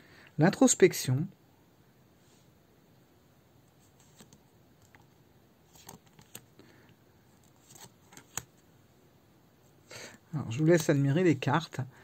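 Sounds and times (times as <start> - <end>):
cards rustling: 3.7 - 6.6, 7.4 - 8.6
cards clicking and tapping: 5.7 - 6.5, 7.4 - 8.5.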